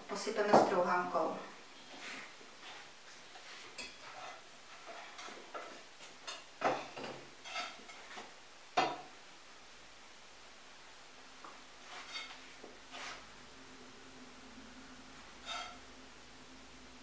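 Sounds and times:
pan and spoon clinking: 0:15.4 - 0:15.8.

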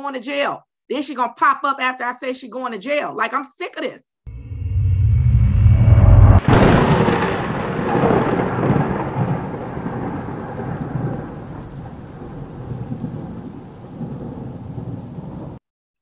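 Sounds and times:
thunder crack and rumble: 0:05.0 - 0:15.6.

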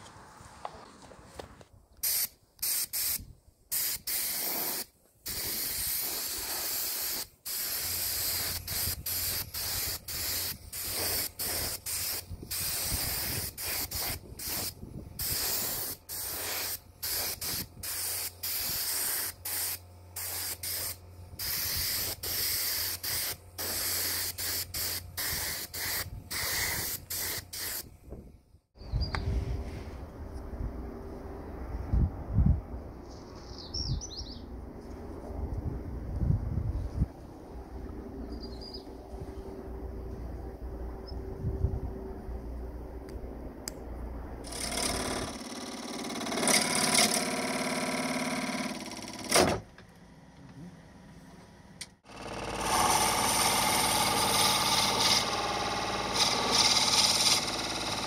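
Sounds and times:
paint spray bursts: 0:02.0 - 0:27.9
low hum: 0:27.9 - 0:33.6, 0:34.2 - 0:44.5.

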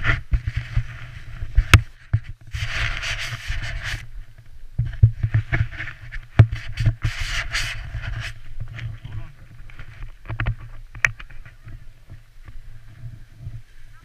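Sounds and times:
scraping hiss: 0:00.0 - 0:04.4, 0:05.2 - 0:10.2
wind buffeting microphone: 0:00.0 - 0:14.0.

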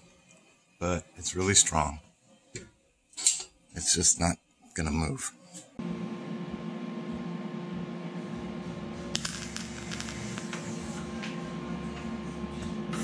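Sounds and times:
welder humming: 0:05.8 - 0:13.0
welding arc crackling: 0:08.8 - 0:11.0.

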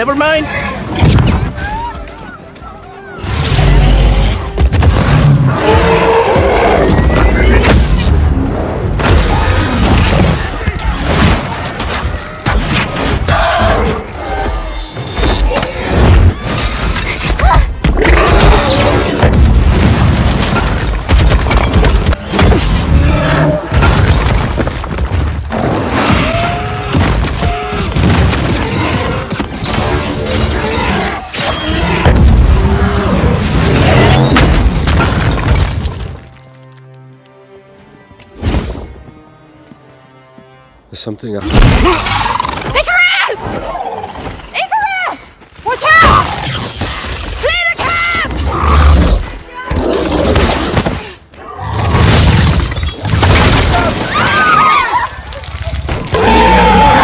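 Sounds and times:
dramatic music score: 0:00.0 - 0:43.4
explosions and impacts: 0:03.2 - 0:05.8, 0:17.8 - 0:23.0, 0:23.7 - 0:31.0, 0:31.7 - 0:36.2, 0:51.7 - 0:54.3
action film music: 0:25.0 - 0:43.3.

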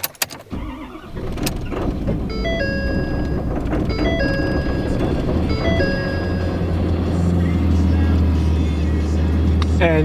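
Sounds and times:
diesel engine starting and idling: 0:00.4 - 0:10.0
dashboard chime tones: 0:02.3 - 0:07.3.

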